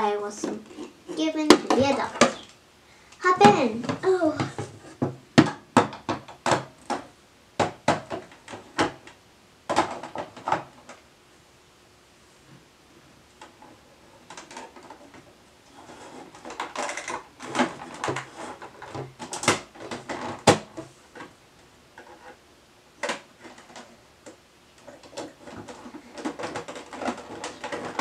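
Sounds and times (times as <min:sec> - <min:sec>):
plastic toys knocking on wood: 0:01.5 - 0:02.5, 0:03.4 - 0:09.0.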